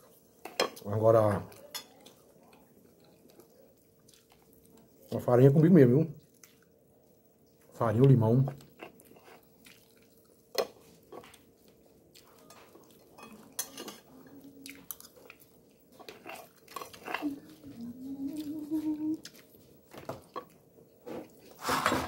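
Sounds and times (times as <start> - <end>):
person chewing: 2.4 - 5.2, 8.6 - 13.6, 14.4 - 21.5
plastic utensil scraping plate: 21.5 - 22.0.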